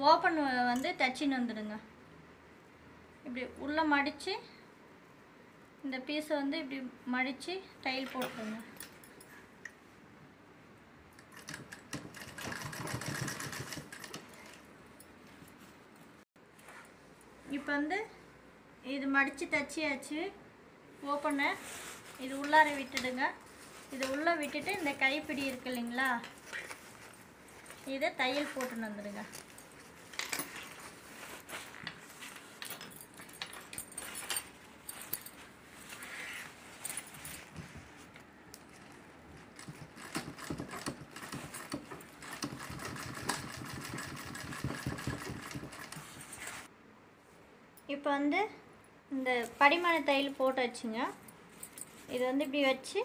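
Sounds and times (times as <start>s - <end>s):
sewing machine stitching: 11.2s - 14.6s, 39.5s - 46.6s
fabric handbag rustling: 21.2s - 38.1s, 38.8s - 46.7s.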